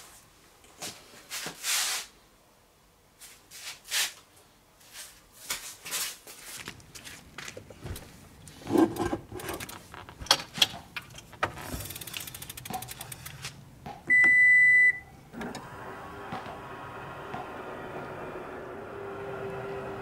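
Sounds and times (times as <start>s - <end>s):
rapid ticking: 11.8s - 13.4s
loud steady beep: 14.1s - 15.1s
tailgate motor humming: 15.3s - 20.0s.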